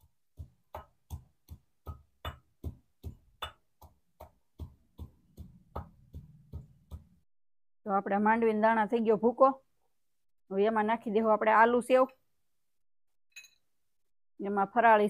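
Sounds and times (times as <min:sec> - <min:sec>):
pestle pounding in metal mortar: 0:00.0 - 0:07.2.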